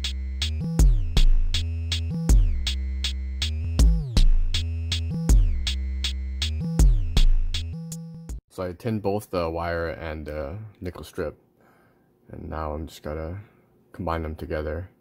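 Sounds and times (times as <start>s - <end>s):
deep bass with sliding notes: 0.0s - 8.3s
drum machine beat: 0.0s - 8.4s.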